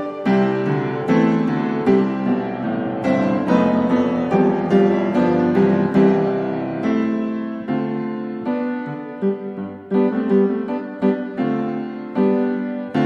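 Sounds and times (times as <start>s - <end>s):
piano music: 0.0s - 13.0s.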